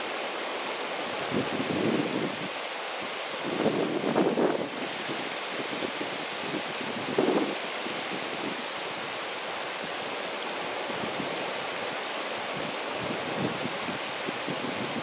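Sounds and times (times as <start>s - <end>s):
creek rushing over rocks: 0.0s - 15.0s
wind buffeting microphone: 3.4s - 8.7s.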